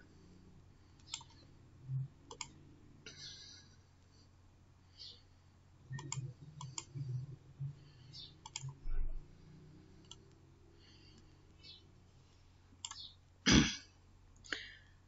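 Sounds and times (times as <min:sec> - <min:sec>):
computer mouse clicking: 0:01.0 - 0:01.4, 0:02.3 - 0:02.6, 0:05.9 - 0:07.0, 0:08.1 - 0:09.1, 0:10.0 - 0:10.4, 0:12.8 - 0:13.1.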